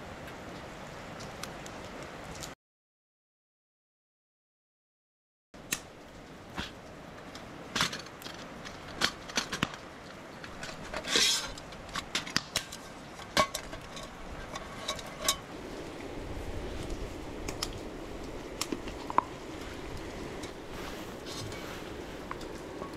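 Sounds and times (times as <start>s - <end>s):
metal cookware clinking: 12.7s - 15.4s.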